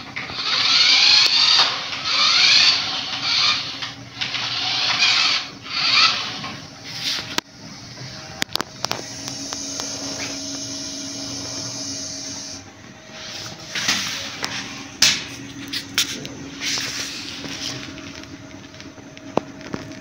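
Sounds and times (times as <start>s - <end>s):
toy car electric motors whirring: 0.0s - 7.4s, 8.2s - 12.6s.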